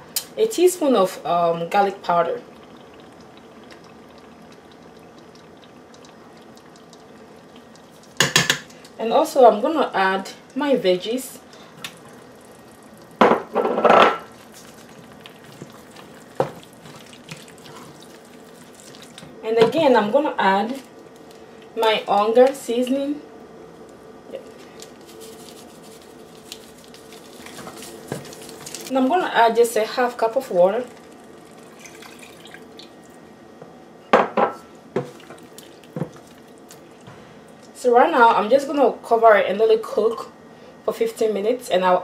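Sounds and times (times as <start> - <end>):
spoon knocking against metal pot: 8.2 - 8.6
wooden spoon stirring stew: 14.4 - 19.4, 27.2 - 28.9
water poured into pot: 30.8 - 33.0.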